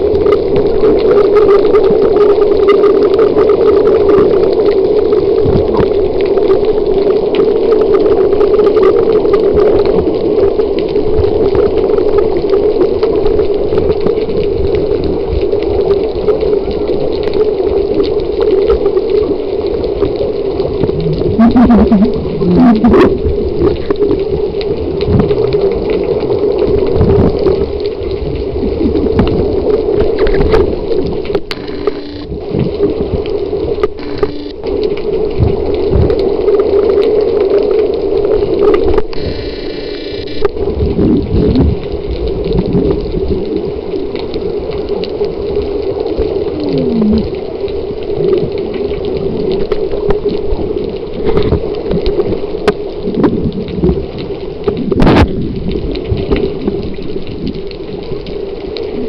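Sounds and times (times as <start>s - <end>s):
underwater water sloshing and bubbling: 0.0s - 59.0s.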